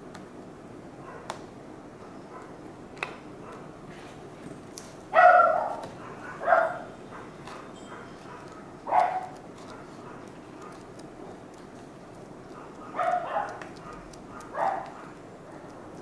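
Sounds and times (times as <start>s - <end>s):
dog barking: 1.0s - 1.3s, 2.0s - 2.6s, 5.1s - 10.8s, 12.6s - 15.7s.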